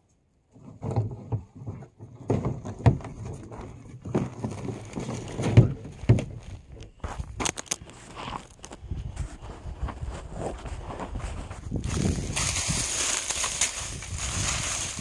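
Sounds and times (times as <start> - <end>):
crackling litter: 4.1 - 5.6, 7.4 - 15.0
footsteps on pine needles and mulch: 6.3 - 15.0.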